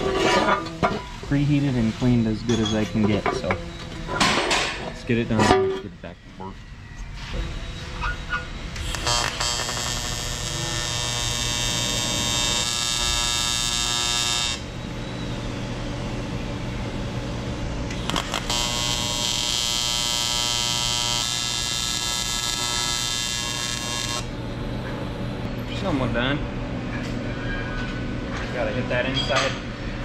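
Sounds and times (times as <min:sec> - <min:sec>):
arc welder buzzing: 0:07.5 - 0:25.5.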